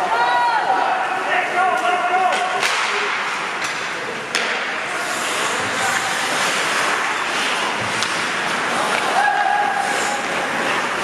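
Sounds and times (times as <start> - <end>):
hockey sticks clacking on puck: 1.8 - 4.8, 5.6 - 11.0
players shouting: 8.8 - 10.6.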